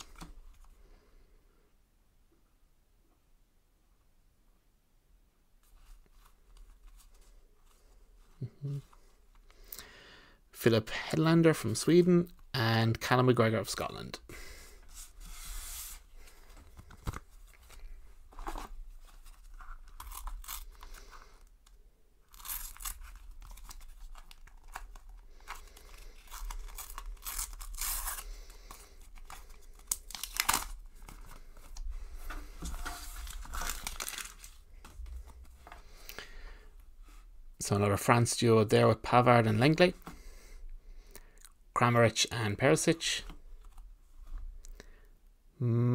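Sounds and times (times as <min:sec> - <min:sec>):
foil wrapper tearing and crinkling: 0:19.8 - 0:21.1, 0:22.3 - 0:31.3, 0:33.0 - 0:34.6.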